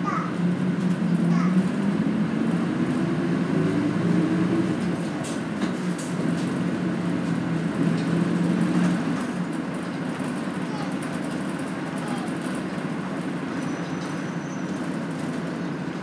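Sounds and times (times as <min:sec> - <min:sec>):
bus engine drone: 0:00.0 - 0:16.0
road noise: 0:00.0 - 0:16.0.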